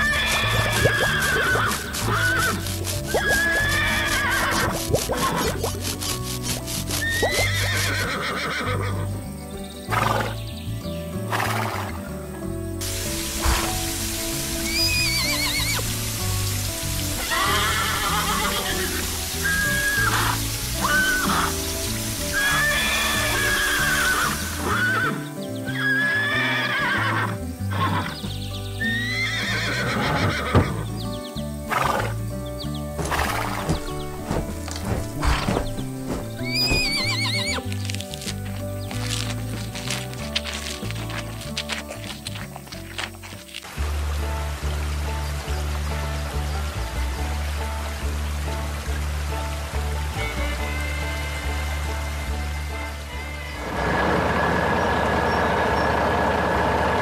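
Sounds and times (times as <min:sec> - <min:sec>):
cartoon horse whinny: 0:00.0 - 0:05.7, 0:07.0 - 0:09.0, 0:17.2 - 0:21.5, 0:28.8 - 0:30.8
water spraying from hose: 0:00.0 - 0:09.0, 0:12.8 - 0:57.0
background music: 0:00.0 - 0:57.0.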